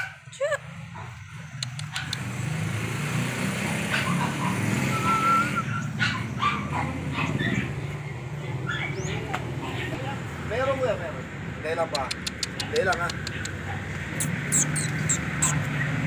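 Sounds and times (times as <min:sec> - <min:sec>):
puppies whimpering and yipping: 0:03.7 - 0:09.3, 0:12.2 - 0:16.0.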